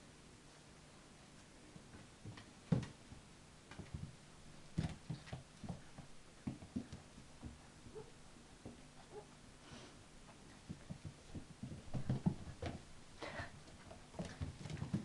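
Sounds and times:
puppy claws tapping on floor: 0:10.6 - 0:12.8, 0:13.6 - 0:15.0.

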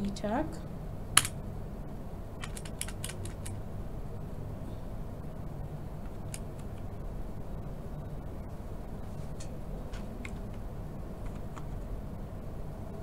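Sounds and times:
steady low hum: 0:00.0 - 0:13.0
keyboard key clicks: 0:02.4 - 0:03.6, 0:06.0 - 0:06.9.

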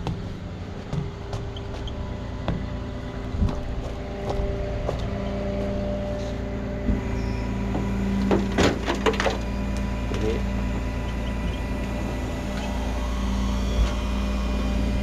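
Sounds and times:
footsteps: 0:00.0 - 0:07.0
tow truck engine idling: 0:00.0 - 0:15.0.

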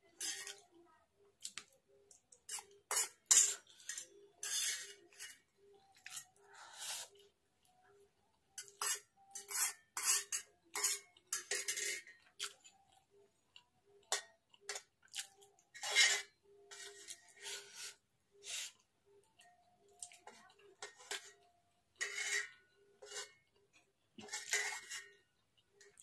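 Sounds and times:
fork scraping a steel plate: 0:00.1 - 0:00.6, 0:02.5 - 0:07.2, 0:08.6 - 0:12.2, 0:15.8 - 0:18.8, 0:20.3 - 0:23.5, 0:24.2 - 0:25.3
noodles slurped and chewed: 0:12.1 - 0:13.7, 0:14.4 - 0:15.7.

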